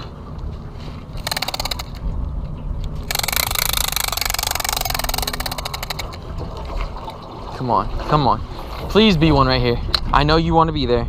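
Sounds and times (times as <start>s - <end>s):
fishing reel whirring clicks: 1.2s - 2.0s, 3.0s - 6.2s.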